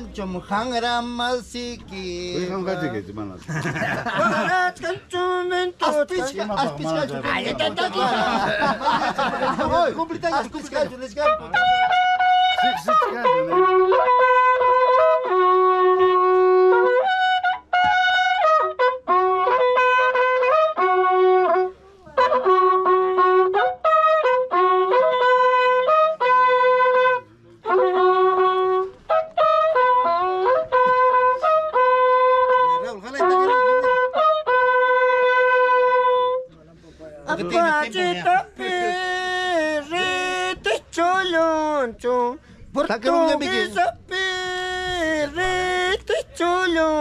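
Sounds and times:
horn trumpet melody: 0:11.2 - 0:36.5.

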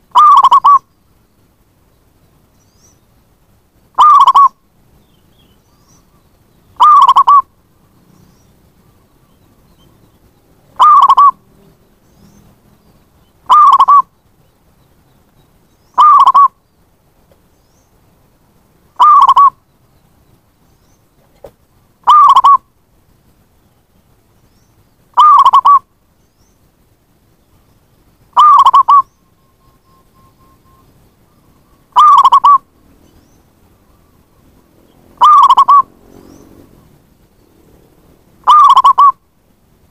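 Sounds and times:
dove cooing calls: 0:00.0 - 0:00.9, 0:03.9 - 0:04.6, 0:06.8 - 0:08.3, 0:10.6 - 0:11.6, 0:13.3 - 0:14.1, 0:15.9 - 0:16.6, 0:19.0 - 0:19.6, 0:21.2 - 0:22.7, 0:25.1 - 0:25.9, 0:28.3 - 0:37.0, 0:38.4 - 0:39.2.

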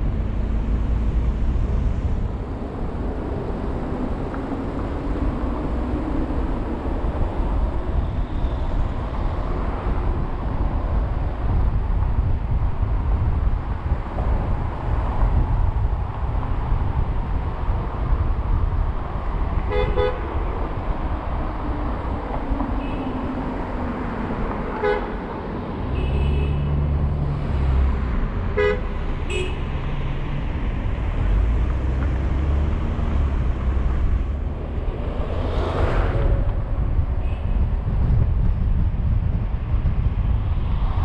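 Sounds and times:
car road and engine rumble: 0:00.0 - 0:41.0
car horn toots: 0:25.9 - 0:26.7, 0:28.6 - 0:29.7
rushing noise: 0:26.6 - 0:38.5.

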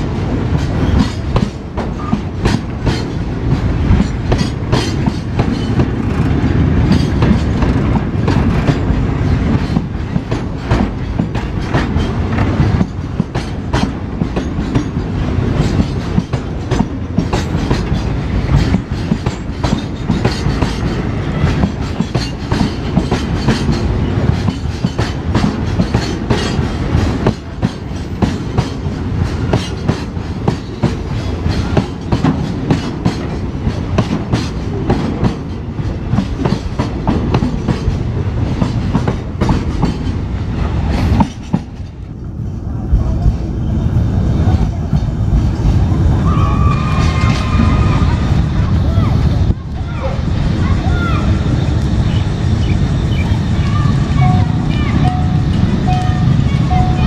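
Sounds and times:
wheels clacking over rail joints: 0:00.0 - 0:42.3
train wagons rumbling past: 0:00.0 - 0:57.0.

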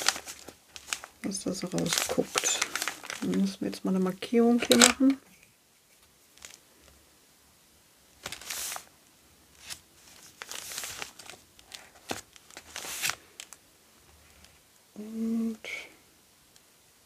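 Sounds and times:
paper rustling and crinkling: 0:00.0 - 0:03.6, 0:04.4 - 0:05.2, 0:05.9 - 0:06.6, 0:08.2 - 0:08.9, 0:09.5 - 0:14.6.

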